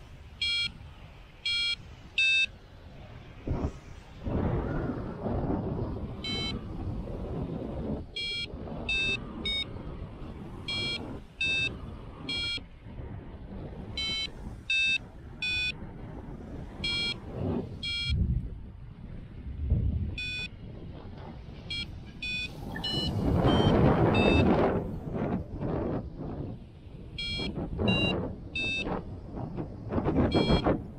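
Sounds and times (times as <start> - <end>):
wind rushing on microphone: 0.0 - 30.9
variometer short beeps: 0.4 - 0.8, 1.4 - 2.5, 6.2 - 6.6, 8.2 - 9.7, 10.7 - 12.6, 14.0 - 15.8, 16.8 - 17.2, 17.8 - 18.2, 20.2 - 20.5, 21.7 - 24.6, 27.2 - 28.9, 30.3 - 30.8.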